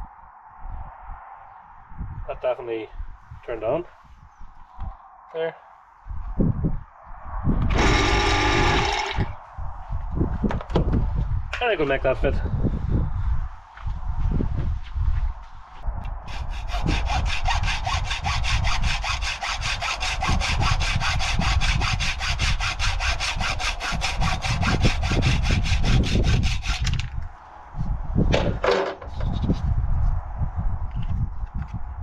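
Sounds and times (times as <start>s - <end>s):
hacksaw cutting: 7.7s - 9.2s, 16.2s - 27.0s.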